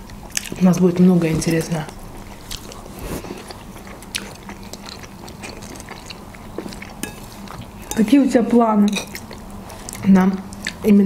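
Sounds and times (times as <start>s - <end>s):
chewing and mouth noises: 0.0s - 8.2s, 8.8s - 11.0s.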